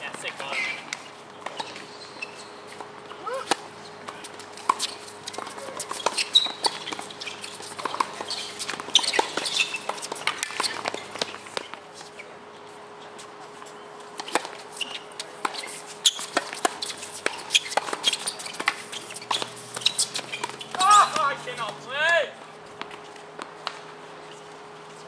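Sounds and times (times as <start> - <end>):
tennis ball bouncing on court: 2.8 - 11.7, 15.4 - 21.8.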